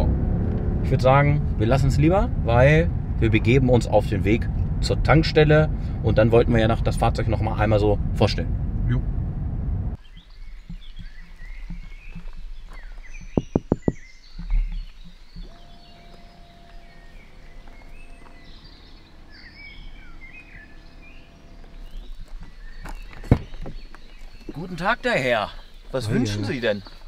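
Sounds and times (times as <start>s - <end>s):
car cabin driving noise: 0.0s - 10.0s, 15.0s - 24.4s
birds chirping: 9.9s - 27.0s
dull thump: 13.2s - 15.6s, 22.0s - 23.9s.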